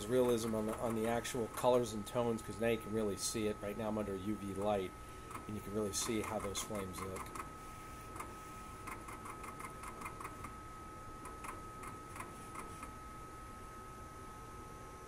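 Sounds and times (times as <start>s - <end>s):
steady high hum: 0.0s - 15.0s.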